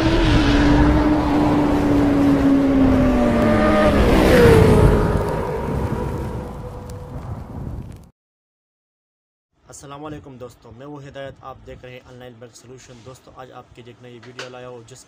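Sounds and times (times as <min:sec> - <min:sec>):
rush of noise: 0:00.0 - 0:07.6.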